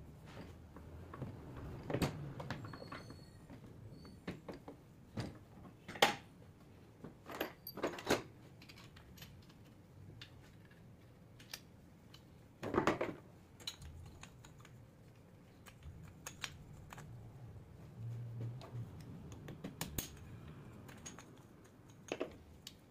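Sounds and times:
sharp metal clicks and taps: 15.6s - 17.1s, 18.9s - 22.9s.

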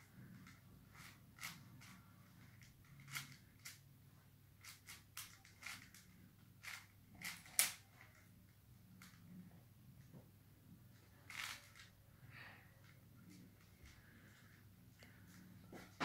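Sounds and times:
plastic puzzle cube clicking: 2.6s - 3.8s, 4.6s - 8.1s.

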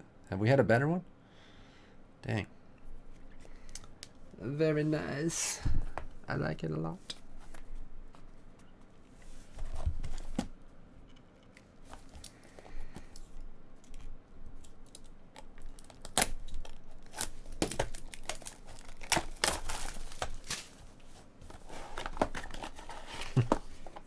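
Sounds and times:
plastic wrap snapping: 13.8s - 20.8s
plastic wrap crinkling and tearing: 13.8s - 21.0s.

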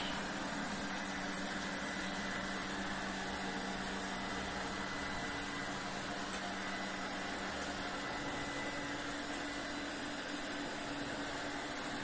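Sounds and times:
robot vacuum whirring: 0.0s - 12.0s.

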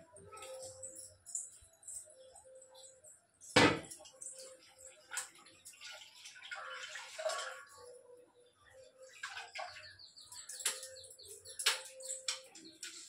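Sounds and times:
water splashing and dripping: 2.8s - 8.0s, 8.6s - 13.0s
birds chirping: 6.4s - 13.0s.

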